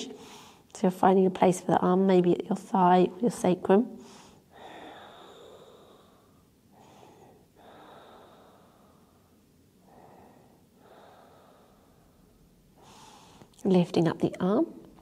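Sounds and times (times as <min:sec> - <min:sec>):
woman breathing slowly: 0:00.1 - 0:00.7, 0:04.0 - 0:13.6.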